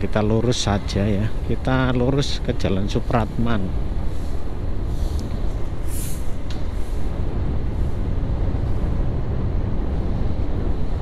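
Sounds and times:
wind on the microphone: 0:00.0 - 0:11.0
short hiss: 0:04.9 - 0:07.1.

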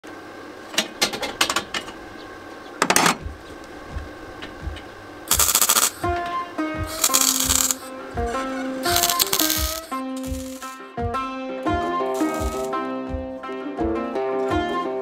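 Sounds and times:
music: 0:02.0 - 0:15.0
welder arcing in short bursts: 0:05.3 - 0:06.1, 0:06.9 - 0:07.9, 0:08.8 - 0:10.8, 0:12.2 - 0:12.8.

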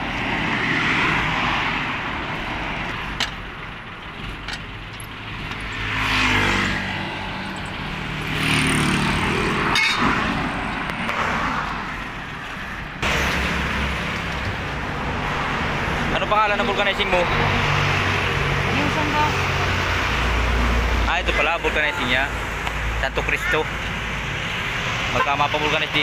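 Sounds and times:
road traffic passing: 0:00.0 - 0:26.0
lug wrench clinking on wheel nuts: 0:02.9 - 0:06.0.

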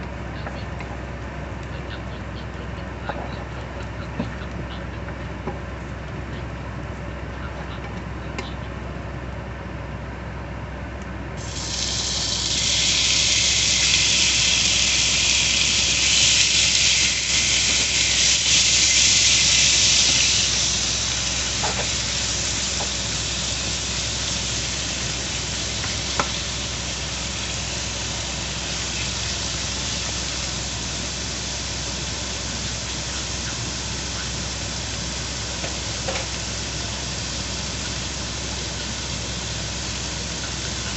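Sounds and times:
meat sizzling in oil: 0:11.4 - 0:40.9.

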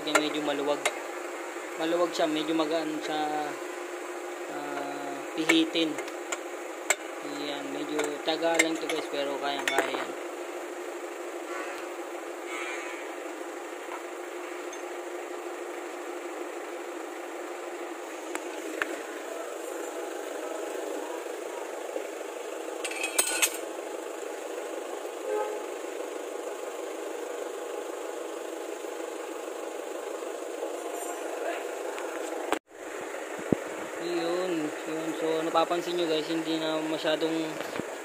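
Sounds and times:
steady background hum: 0:00.0 - 0:38.0
sharp metallic clatter: 0:22.8 - 0:23.7.

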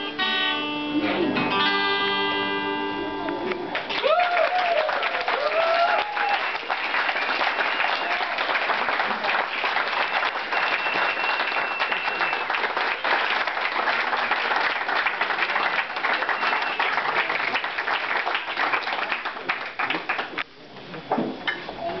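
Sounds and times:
audience applauding: 0:03.5 - 0:20.4
high whistle: 0:07.6 - 0:08.3, 0:10.0 - 0:13.2, 0:16.1 - 0:17.0.

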